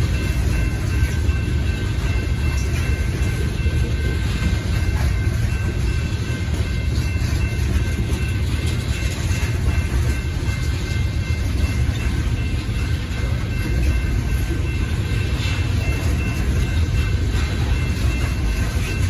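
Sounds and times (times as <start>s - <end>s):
crossing bell ringing: 0.0s - 19.0s
train wheels rumbling on rails: 0.0s - 19.0s.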